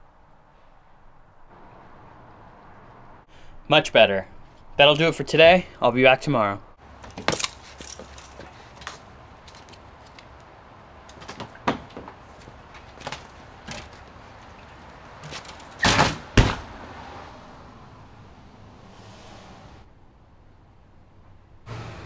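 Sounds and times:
door pushed shut with knocks: 0:15.8 - 0:16.7.

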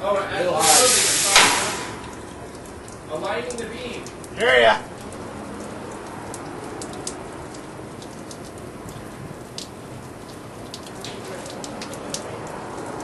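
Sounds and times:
background hiss: 0:00.4 - 0:04.8
sharp ticks and crackles: 0:01.4 - 0:13.0.

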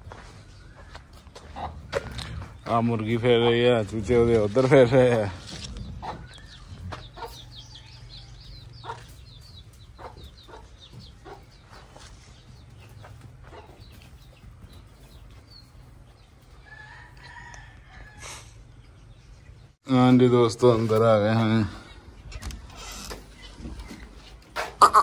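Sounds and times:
chicks peeping: 0:00.0 - 0:19.8
hen clucking: 0:00.8 - 0:18.8, 0:22.2 - 0:25.0.

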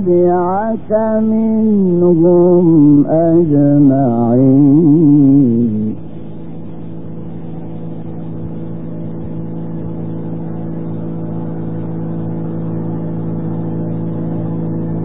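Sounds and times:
low hum with hiss: 0:00.0 - 0:15.0.

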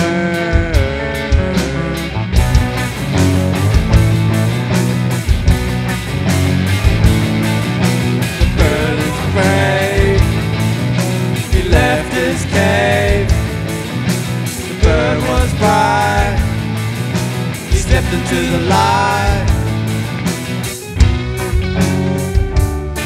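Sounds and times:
person singing: 0:00.0 - 0:02.2, 0:08.4 - 0:10.4, 0:11.4 - 0:13.4, 0:14.7 - 0:16.6, 0:17.7 - 0:19.7
bass and electric guitars: 0:00.0 - 0:23.0
drum kit: 0:00.0 - 0:23.0.

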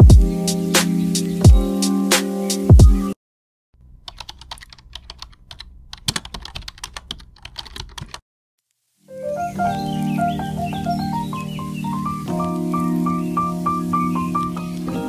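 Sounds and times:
background music: 0:00.0 - 0:03.2, 0:09.1 - 0:15.0.

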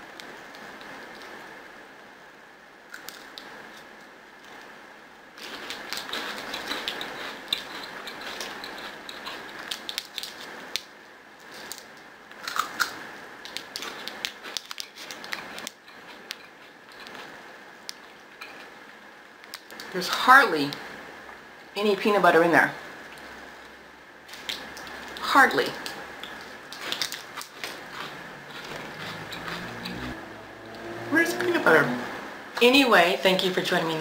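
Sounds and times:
foil wrapper crinkling: 0:26.3 - 0:28.0.

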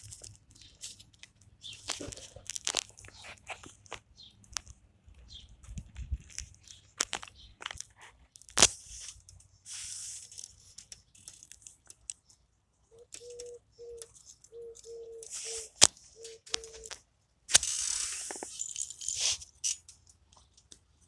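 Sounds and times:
plastic parts rustling: 0:00.0 - 0:04.8, 0:05.7 - 0:12.4, 0:15.2 - 0:20.7
plastic pieces clicking and snapping: 0:00.0 - 0:04.8, 0:06.0 - 0:09.4, 0:10.4 - 0:12.4.

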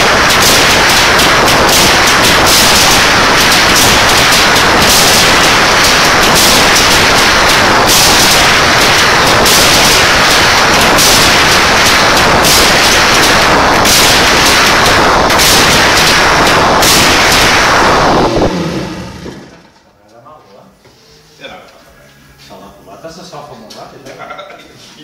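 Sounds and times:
two-stroke engine running loud: 0:00.0 - 0:19.6.

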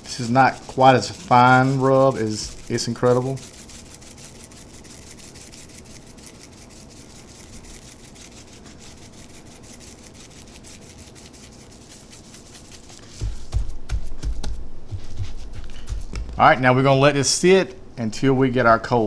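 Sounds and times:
seasoning shaken from shaker: 0:00.0 - 0:16.3
hand rubbing seasoning into meat: 0:00.0 - 0:17.0.

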